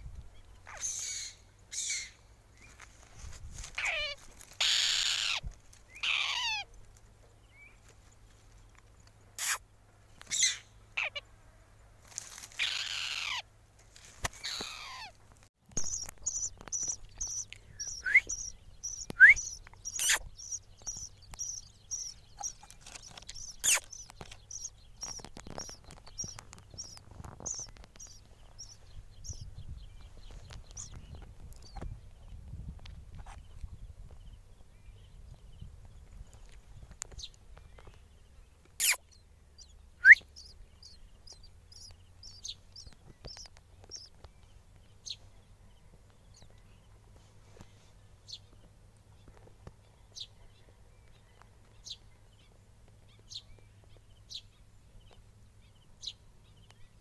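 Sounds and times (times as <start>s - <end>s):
chicks begging screeches: 0.7s - 2.2s, 3.8s - 6.7s, 9.4s - 9.6s, 12.5s - 13.4s, 14.4s - 15.1s, 15.8s - 29.4s, 38.8s - 44.1s
nestlings high cheeps: 15.8s - 29.4s, 38.8s - 39.0s.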